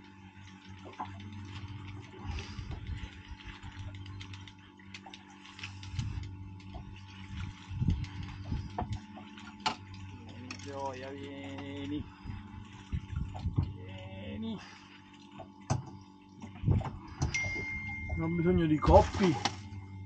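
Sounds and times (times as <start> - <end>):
steady low hum: 0.0 - 20.0
fishing reel ticking and clicking: 0.3 - 12.4.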